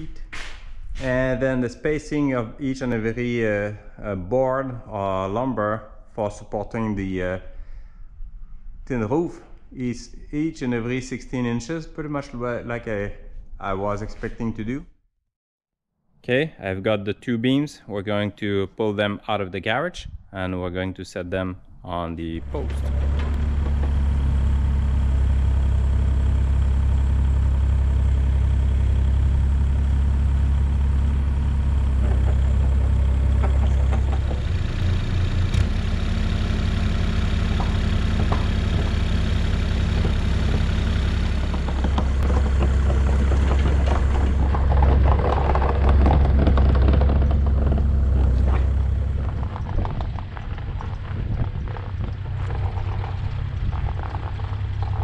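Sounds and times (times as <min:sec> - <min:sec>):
mini excavator diesel engine: 0:22.2 - 0:55.0.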